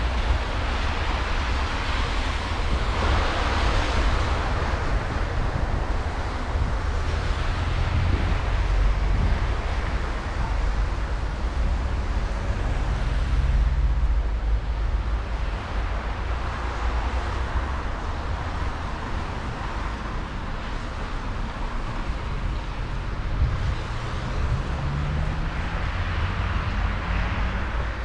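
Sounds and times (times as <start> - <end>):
road traffic rumble: 0.0 - 28.0.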